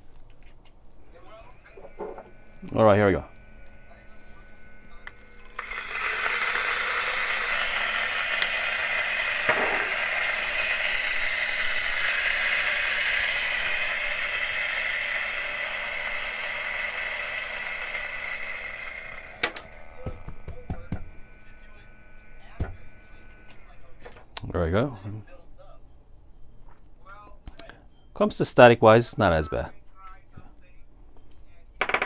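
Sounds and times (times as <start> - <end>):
coffee grinder grinding: 1.6 - 23.8.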